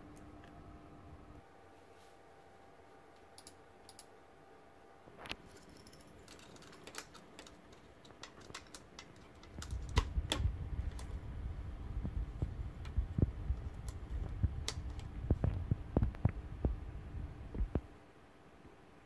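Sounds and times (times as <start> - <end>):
low handling rumble: 9.6 - 17.9.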